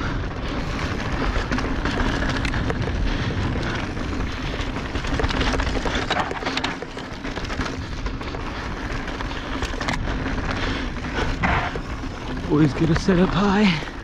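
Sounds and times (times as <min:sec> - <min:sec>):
bike knocking and rattling: 0:00.0 - 0:14.0
bike tyres on dirt and gravel: 0:00.0 - 0:14.0.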